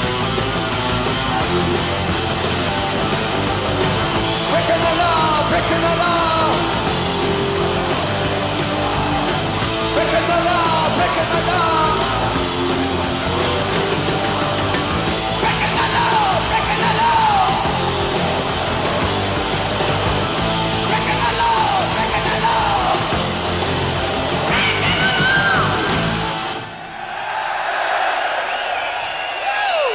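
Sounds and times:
heavy metal band playing: 0.0s - 26.8s
high wordless vocal wails: 15.4s - 17.7s, 20.9s - 23.1s, 24.4s - 25.9s.

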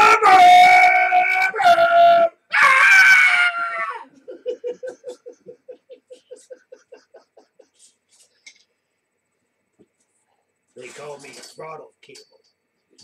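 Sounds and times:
person laughing: 4.1s - 7.9s.

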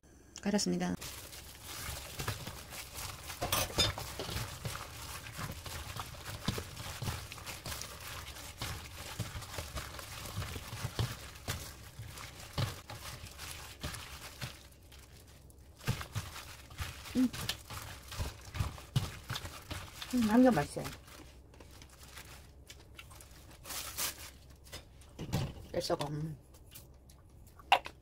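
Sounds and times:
hand mixing radish rustling squishing: 0.9s - 27.6s.

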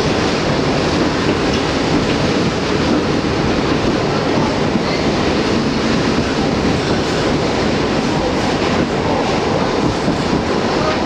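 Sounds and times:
subway car wheels rumbling on rail: 0.0s - 11.0s.

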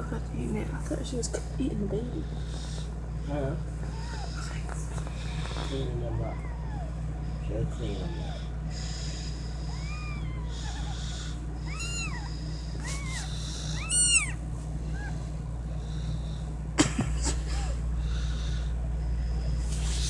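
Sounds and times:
kittens mewing: 3.8s - 16.1s.

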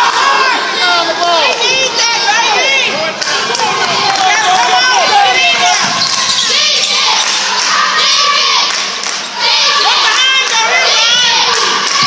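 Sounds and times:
spectators shouting and cheering: 0.0s - 12.0s
sneakers squeaking on court: 5.8s - 7.3s.

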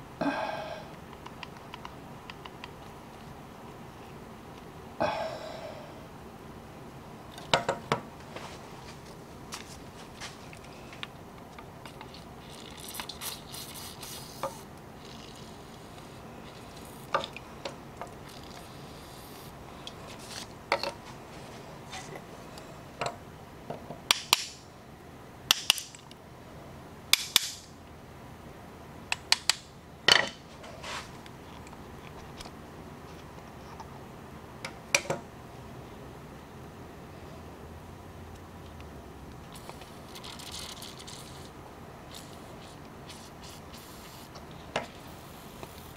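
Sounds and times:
spray hiss: 12.4s - 16.9s, 42.1s - 44.4s.

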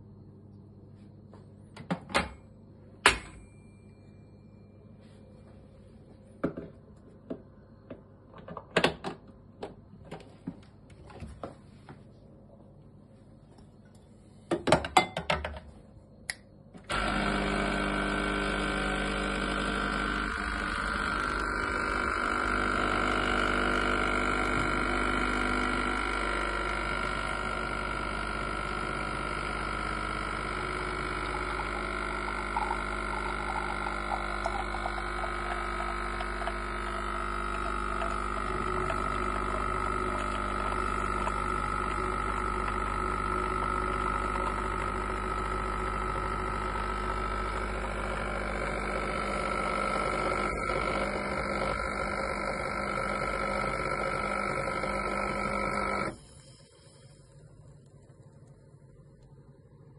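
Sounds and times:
espresso machine pump buzzing: 16.8s - 59.3s.

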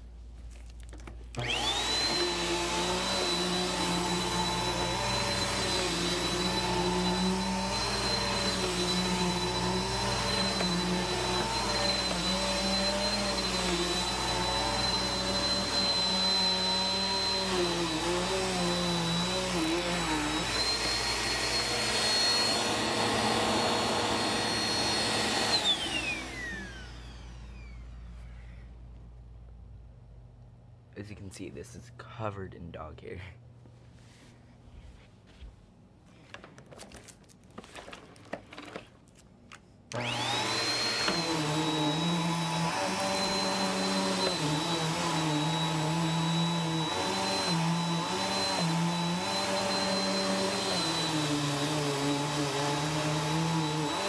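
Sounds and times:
vacuum cleaner motor whining: 1.3s - 28.4s, 39.9s - 54.0s.

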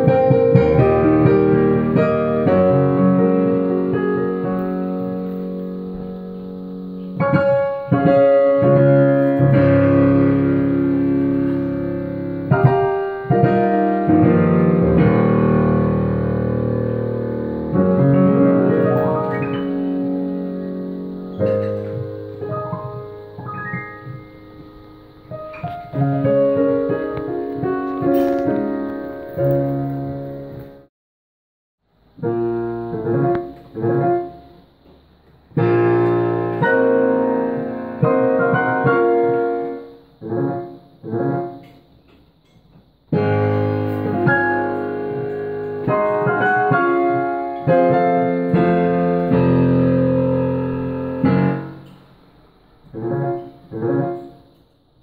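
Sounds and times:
piano music: 0.0s - 30.9s, 32.1s - 42.1s, 43.1s - 55.0s.

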